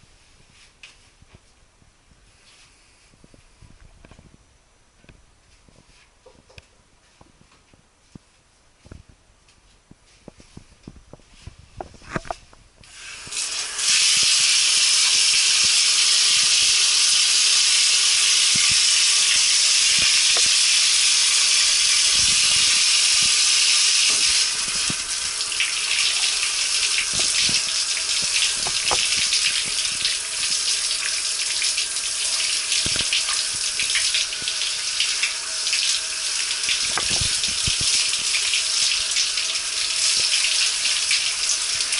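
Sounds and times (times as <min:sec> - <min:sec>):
shower spraying water: 0:12.8 - 0:41.9.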